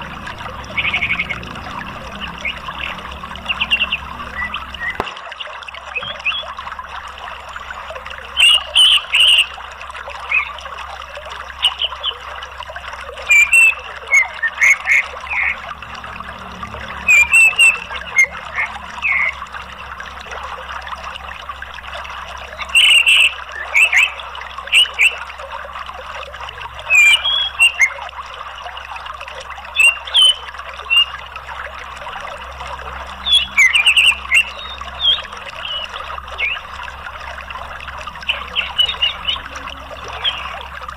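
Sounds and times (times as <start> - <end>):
flowing water rushing: 0.0 - 40.9
bird chirping and chattering: 0.7 - 5.0, 5.9 - 6.5, 8.3 - 9.5, 10.2 - 10.6, 13.2 - 15.7, 16.9 - 19.4, 22.6 - 25.2, 26.8 - 28.0, 33.1 - 36.7, 38.0 - 40.7.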